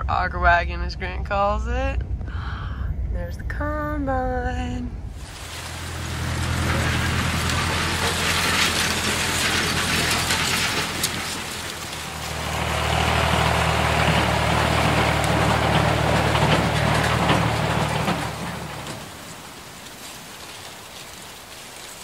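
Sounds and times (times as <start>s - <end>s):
farm machinery engine rattling: 5.2s - 22.0s.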